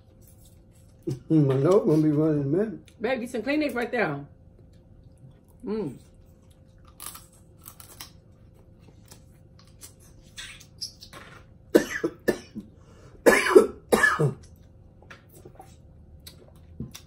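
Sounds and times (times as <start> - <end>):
person coughing: 11.8 - 14.4.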